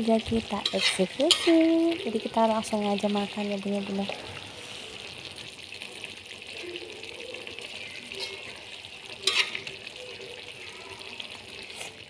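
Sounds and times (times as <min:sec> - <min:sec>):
sauce sizzling in a wok: 0:00.0 - 0:12.0
metal spatula stirring: 0:00.4 - 0:02.2, 0:07.8 - 0:10.2.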